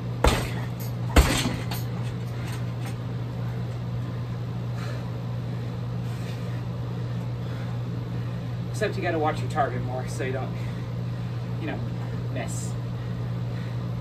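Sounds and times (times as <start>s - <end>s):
kick thudding on heavy bag: 0.0s - 1.9s
low hum: 0.0s - 14.0s.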